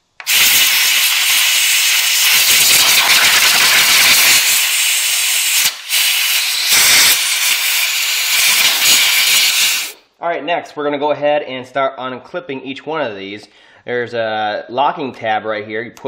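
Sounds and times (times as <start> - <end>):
compressed air blow gun hissing: 0.2 - 10.0.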